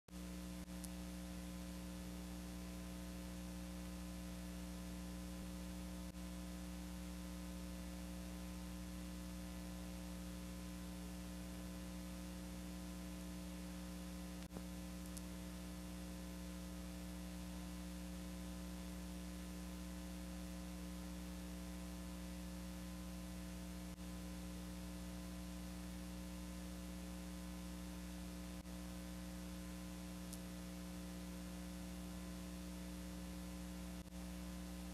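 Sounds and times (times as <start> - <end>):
electrical mains hum: 0.1 - 34.9
tape hiss: 0.1 - 34.9
faint clicks: 0.6 - 1.0, 14.4 - 15.4, 30.2 - 30.5.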